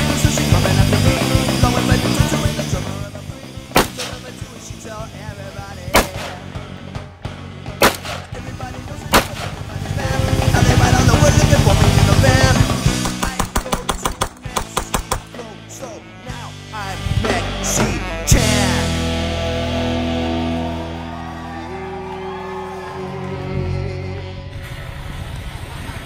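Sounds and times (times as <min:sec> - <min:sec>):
rock music: 0:00.0 - 0:24.6
gunshots: 0:03.7 - 0:04.4, 0:05.9 - 0:06.6, 0:07.8 - 0:08.5, 0:09.1 - 0:09.8, 0:12.9 - 0:15.4.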